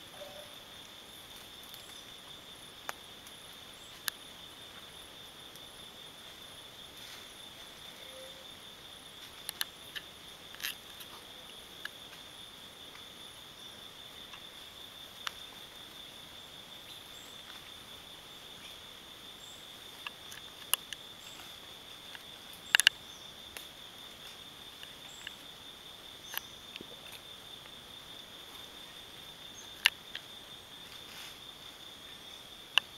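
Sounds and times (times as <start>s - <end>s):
high-pitched insect drone: 0.0s - 0.8s.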